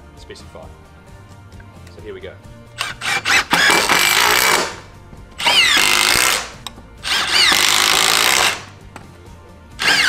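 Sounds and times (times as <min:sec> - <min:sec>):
impact driver whining: 0:02.8 - 0:08.7, 0:09.8 - 0:10.0.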